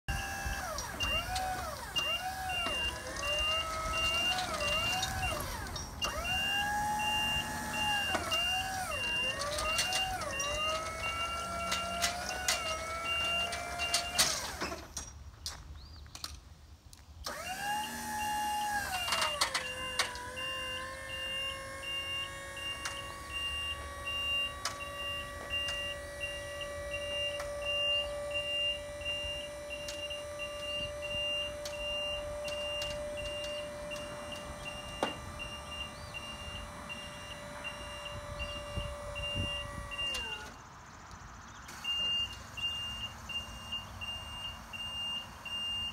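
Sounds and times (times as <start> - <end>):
hydraulic pump motor whining: 0.1 - 15.0, 17.2 - 40.7, 41.6 - 45.9
rapid alarm beeping: 19.6 - 40.4, 41.9 - 45.9.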